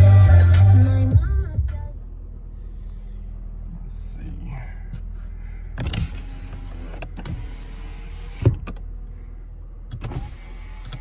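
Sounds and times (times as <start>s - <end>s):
power window motor running: 5.8s - 9.0s, 9.8s - 11.0s.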